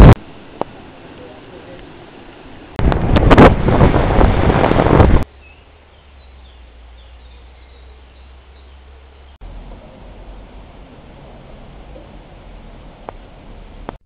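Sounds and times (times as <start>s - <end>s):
wind buffeting microphone: 2.8s - 5.3s.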